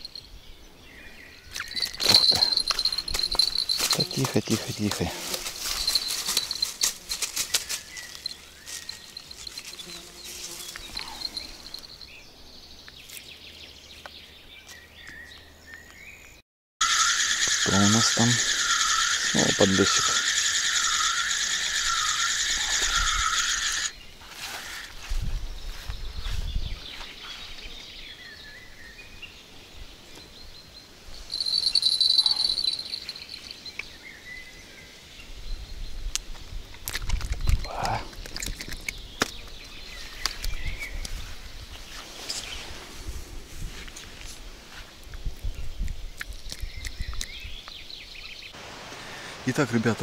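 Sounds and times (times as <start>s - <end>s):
bird chirps: 0.0s - 4.9s, 7.4s - 24.1s, 30.2s - 35.8s
faint high insect buzz: 1.7s - 4.2s, 5.2s - 11.9s, 16.8s - 24.0s.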